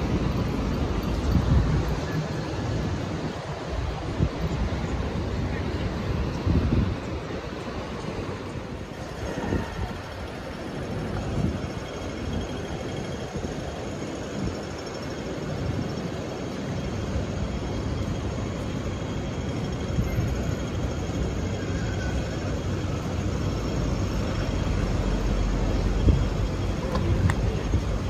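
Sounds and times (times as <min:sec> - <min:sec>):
passing vehicles hum: 0:00.0 - 0:28.0.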